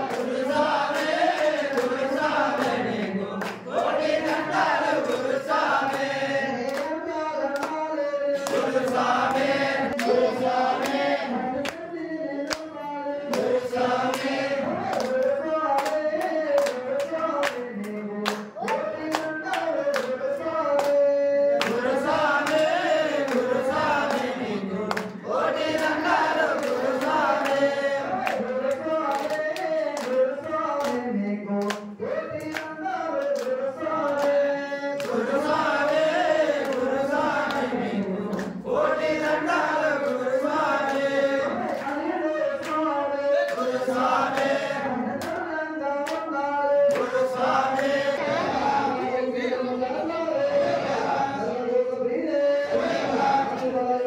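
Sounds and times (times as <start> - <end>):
hand claps: 0.0 - 48.2, 53.5 - 53.8
group singing devotional song: 0.0 - 54.0.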